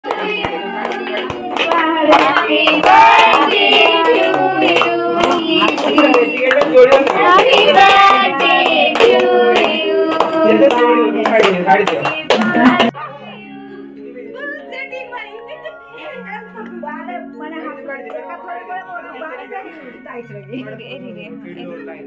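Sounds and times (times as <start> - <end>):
hands clapping: 0.0 - 12.9
people singing: 0.0 - 14.5.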